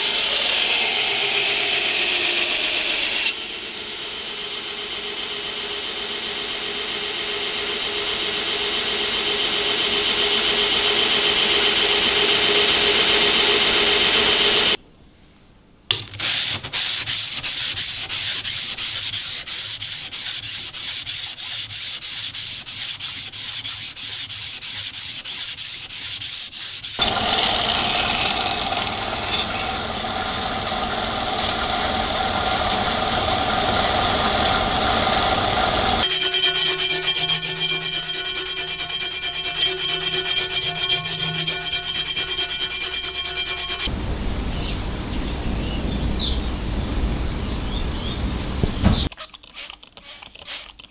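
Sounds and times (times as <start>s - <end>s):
belt grinder grinding steel: 16.1s - 43.9s
sanding strokes: 16.2s - 29.8s, 36.0s - 43.9s.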